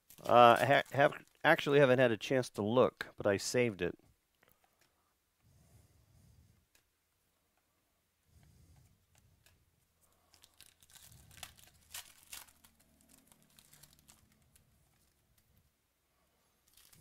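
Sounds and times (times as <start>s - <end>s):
foil wrapper crinkling and tearing: 0.0s - 1.7s, 10.1s - 15.2s, 16.6s - 17.0s.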